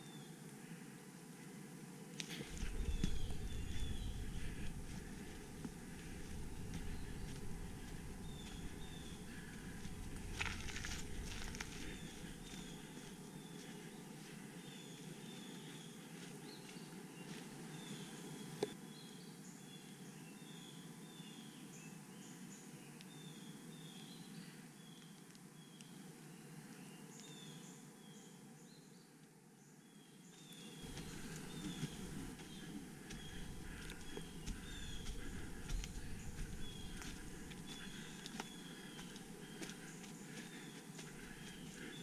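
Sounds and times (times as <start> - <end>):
footsteps rustling on forest floor: 2.2 - 18.6, 30.6 - 42.0.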